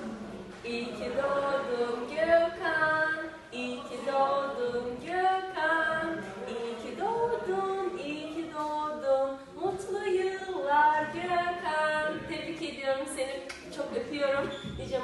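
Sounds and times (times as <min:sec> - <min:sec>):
woman singing unaccompanied: 0:00.6 - 0:15.0.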